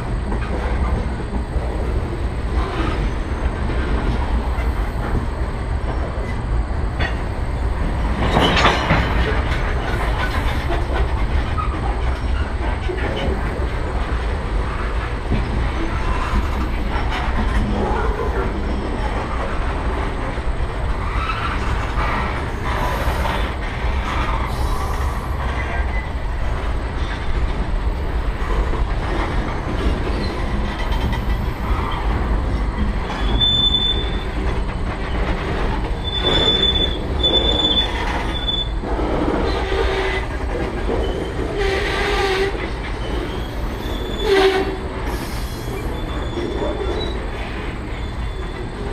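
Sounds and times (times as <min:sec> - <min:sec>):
train wheels rumbling on rails: 0:00.0 - 0:48.9
high-pitched wheel squeals: 0:33.1 - 0:34.3, 0:36.0 - 0:38.8, 0:41.0 - 0:47.2.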